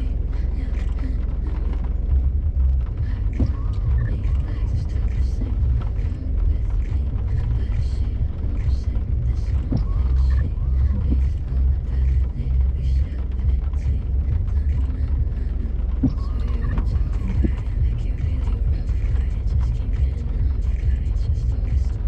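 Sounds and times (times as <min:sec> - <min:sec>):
off-road vehicle engine running: 0:00.0 - 0:22.0.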